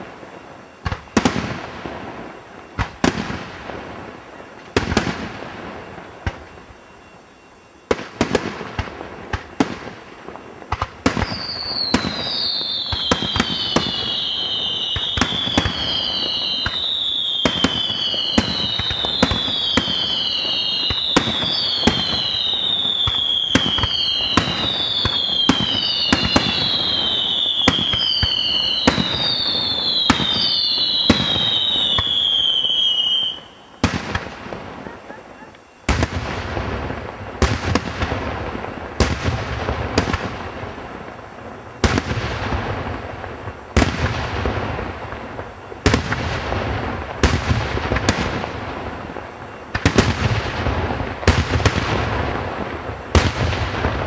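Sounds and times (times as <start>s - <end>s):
firework bangs: 0.0s - 7.0s, 7.9s - 54.0s
firework falling whistles: 0.0s - 40.8s.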